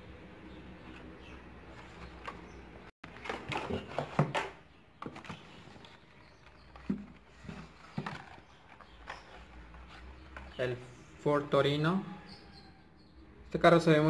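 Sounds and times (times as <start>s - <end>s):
plastic packaging rustling and clacking: 3.1s - 10.7s.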